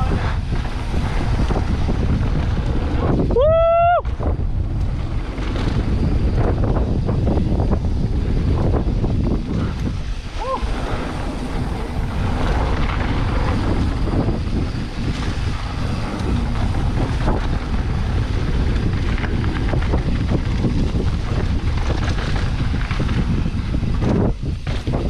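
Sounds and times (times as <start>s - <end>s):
bike rattling clicks and knocks: 0.0s - 25.0s
tyres on dirt trail: 0.0s - 25.0s
wind rushing over microphone: 0.0s - 25.0s.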